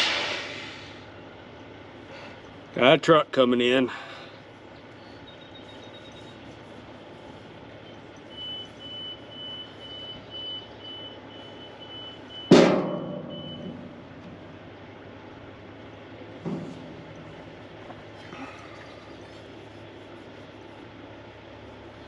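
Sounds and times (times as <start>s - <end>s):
sudden loud burst: 0.0s - 1.0s
steady background noise: 0.0s - 22.0s
truck reversing alarm beeping: 3.9s - 22.0s.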